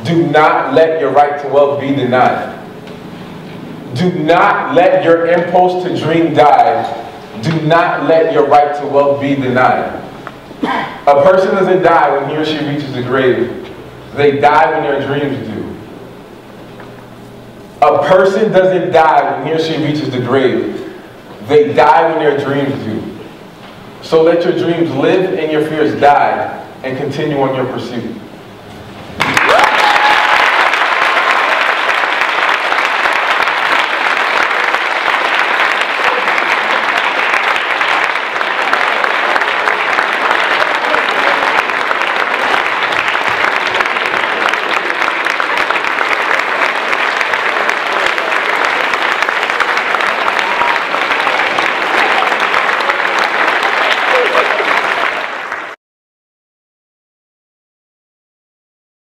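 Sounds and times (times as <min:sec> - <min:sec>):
large audience applauding: 0:29.2 - 0:55.8.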